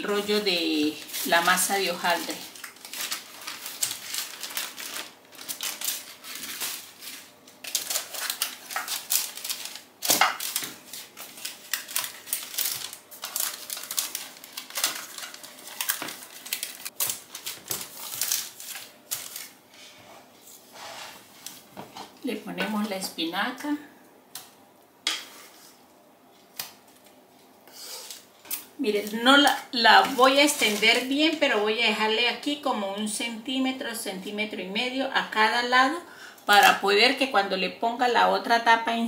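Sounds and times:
baking paper rustling and crinkling: 0.0s - 23.1s, 25.2s - 25.8s, 26.4s - 31.7s.

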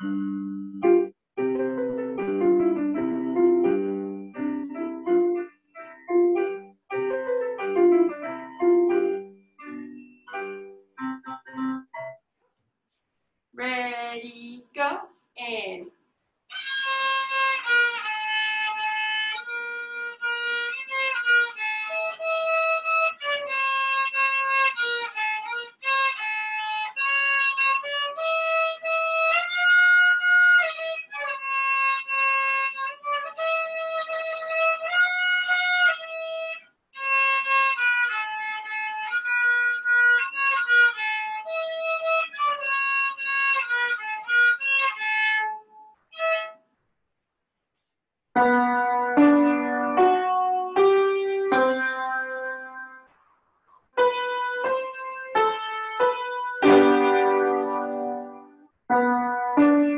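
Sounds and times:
violin melody: 0.0s - 12.1s, 16.5s - 46.6s, 54.0s - 59.9s.

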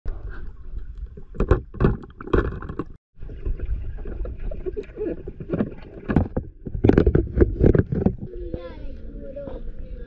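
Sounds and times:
muffled water churning underwater: 0.1s - 8.2s
underwater knocks and bursts: 1.0s - 8.3s.

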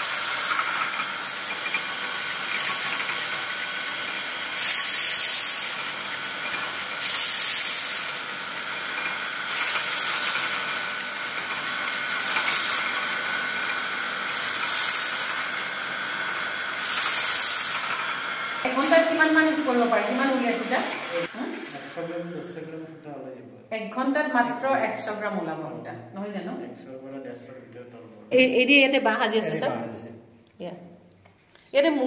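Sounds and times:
gears and spindle rattling: 0.0s - 18.7s
spinning machine motor hum: 0.0s - 21.3s.

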